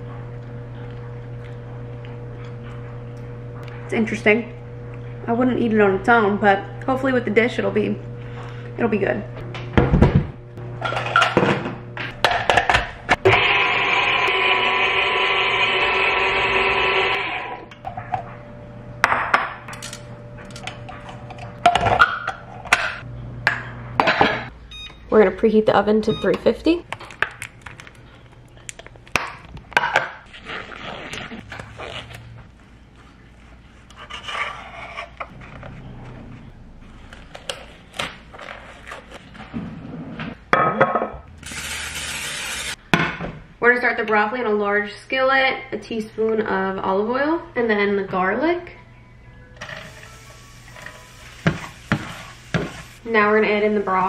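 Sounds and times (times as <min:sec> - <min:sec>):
mixer motor whine: 0:13.0 - 0:17.8.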